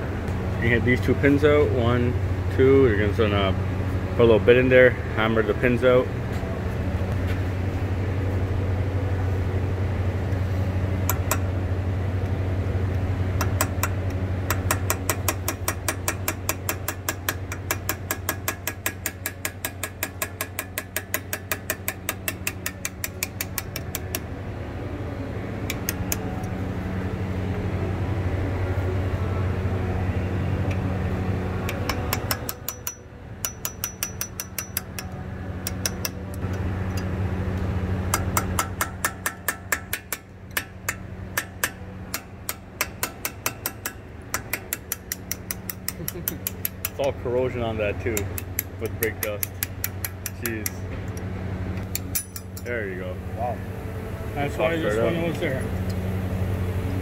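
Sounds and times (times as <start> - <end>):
steady low hum: 0.0 - 57.0
hammer tapping metal punch: 11.0 - 11.5, 13.4 - 24.3, 31.6 - 37.1, 38.1 - 47.2, 48.1 - 51.2, 51.8 - 52.7.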